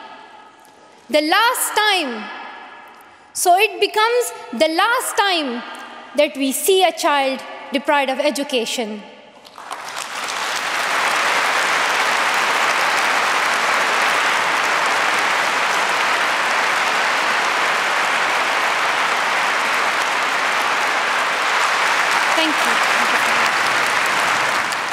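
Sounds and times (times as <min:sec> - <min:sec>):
large audience applauding: 0:09.4 - 0:24.9.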